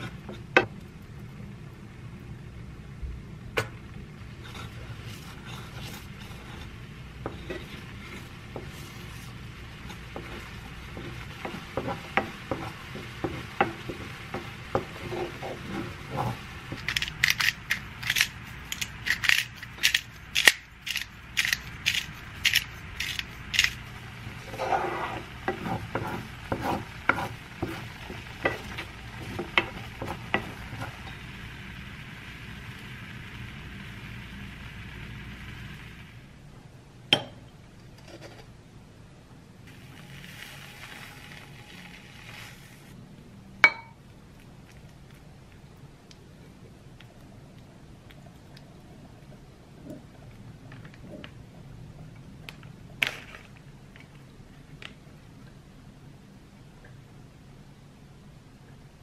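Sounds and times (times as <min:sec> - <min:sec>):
wooden spatula scraping a pan: 0:00.0 - 0:00.5, 0:04.4 - 0:20.2, 0:20.9 - 0:31.3
low steady hum: 0:00.0 - 0:59.0
sauce bubbling: 0:39.7 - 0:43.0.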